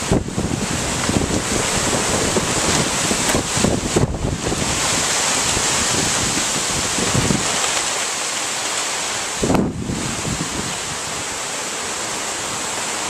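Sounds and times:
wind gusts buffeting microphone: 0:00.0 - 0:08.1, 0:09.2 - 0:11.5
wind and rain rushing through trees: 0:00.0 - 0:13.0.

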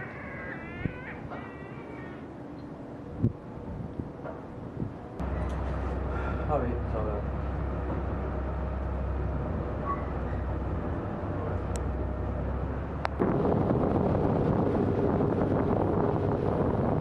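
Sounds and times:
wind rushing over microphone: 0:03.1 - 0:05.4, 0:10.5 - 0:17.0
boat motor humming: 0:05.2 - 0:17.0.

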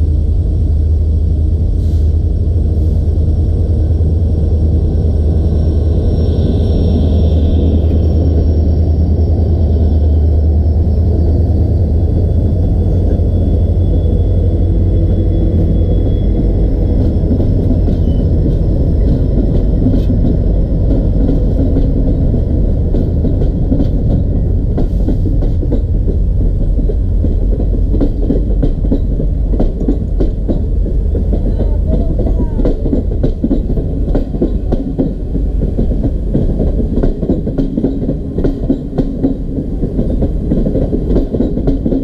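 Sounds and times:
diesel locomotive engine rumble: 0:00.0 - 0:42.0
train wheels clicking over rail joints: 0:15.0 - 0:42.0.

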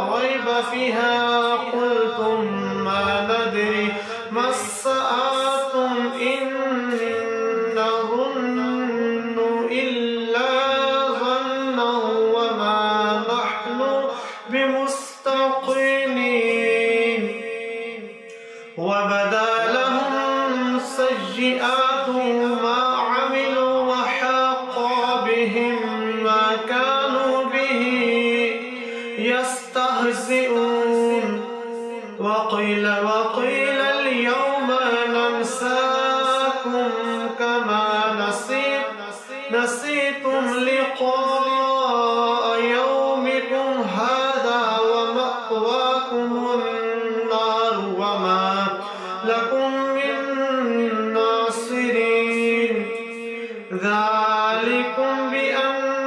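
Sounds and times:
man reciting melodically: 0:00.0 - 0:56.0
man breathing: 0:04.0 - 0:04.3, 0:14.1 - 0:14.5, 0:18.3 - 0:18.8, 0:48.8 - 0:49.2.

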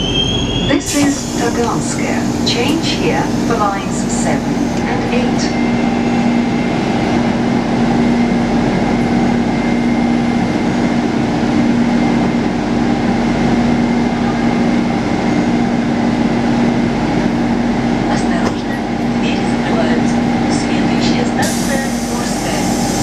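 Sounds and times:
train equipment humming: 0:00.0 - 0:23.0.

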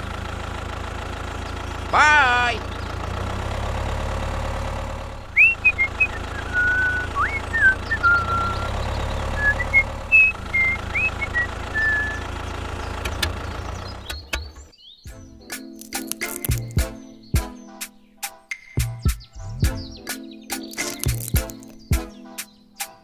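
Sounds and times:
tractor engine idling: 0:00.0 - 0:14.7
person whistling a tune: 0:05.4 - 0:08.8, 0:09.4 - 0:12.2.

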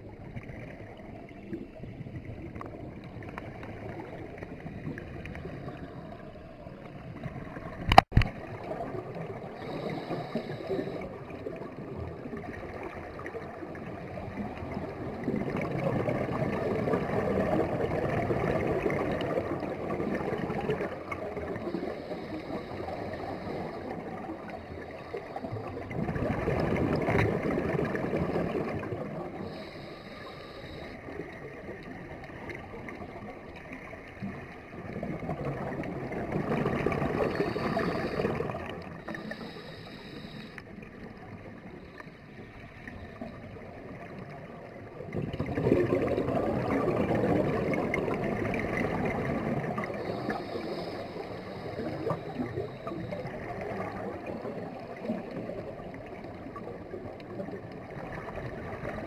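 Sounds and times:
exhaled bubbles rushing: 0:00.0 - 0:29.7, 0:31.2 - 0:39.4, 0:42.9 - 0:59.0
scuba regulator breathing: 0:09.4 - 0:11.4, 0:21.5 - 0:25.9, 0:29.3 - 0:31.2, 0:36.7 - 0:41.1, 0:49.1 - 0:55.6.

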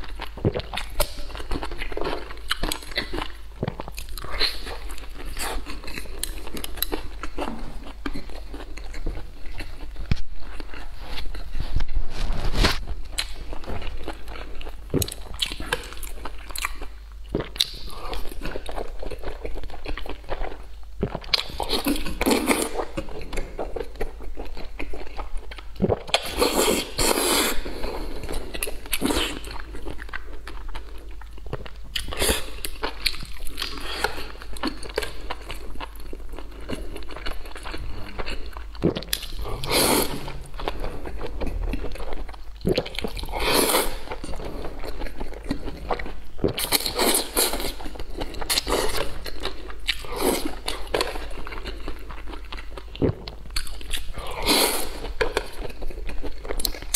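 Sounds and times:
chewing and slurping food: 0:00.0 - 0:56.9
wet mouth sounds: 0:13.0 - 0:23.5, 0:36.7 - 0:44.4, 0:48.4 - 0:56.9.

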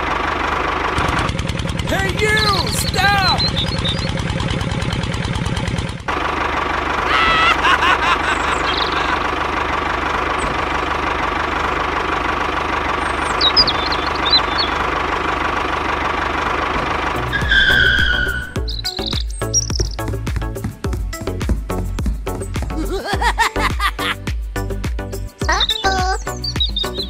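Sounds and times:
tractor engine running: 0:00.0 - 0:27.0
short high chirping calls: 0:03.3 - 0:04.2, 0:13.1 - 0:14.8, 0:17.6 - 0:20.1, 0:25.6 - 0:27.0.

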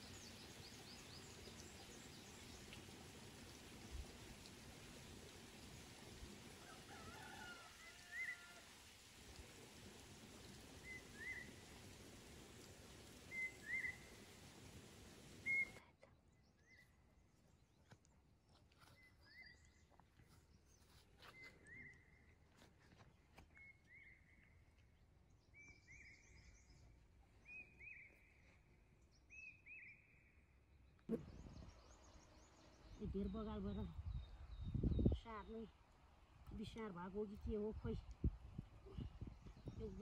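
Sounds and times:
bird chirping: 0:13.3 - 0:14.2, 0:15.4 - 0:15.8.

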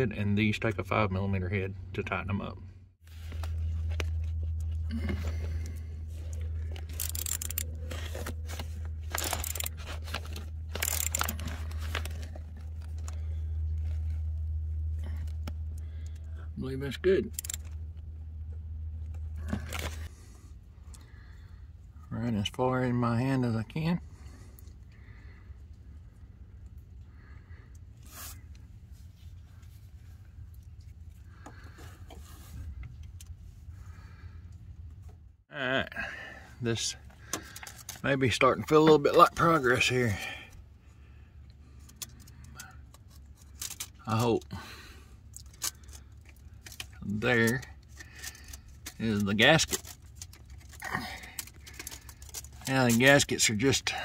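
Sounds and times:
steady low hum: 0:00.0 - 0:54.0
hand ratchet clicking: 0:06.8 - 0:07.8, 0:09.1 - 0:09.8, 0:10.7 - 0:11.5, 0:17.3 - 0:17.7.

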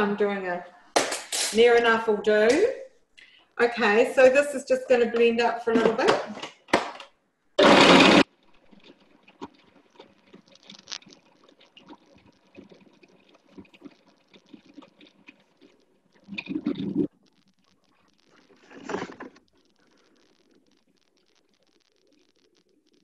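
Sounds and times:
food processor motor: 0:07.6 - 0:08.3
faint broken crackle: 0:08.2 - 0:23.0.

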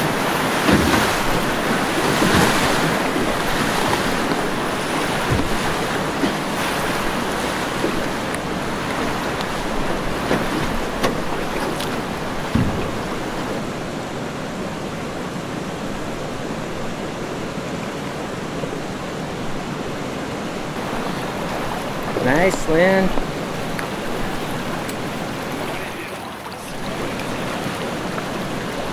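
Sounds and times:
river water rushing and splashing: 0:00.0 - 0:28.9.

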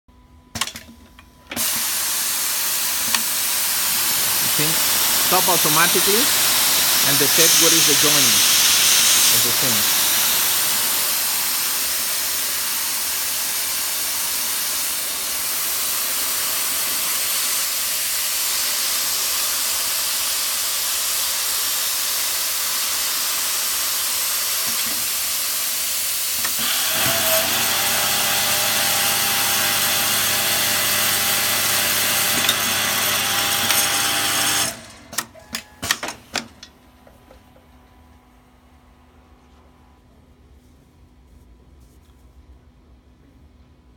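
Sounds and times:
motor hum: 0:01.4 - 0:16.8
sewing machine running: 0:01.6 - 0:35.2.

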